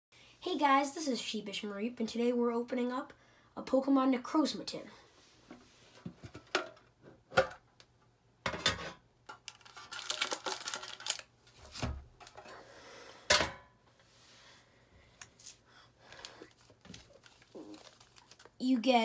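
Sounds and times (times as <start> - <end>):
foil packs rustling: 9.4 - 12.4, 16.0 - 18.6.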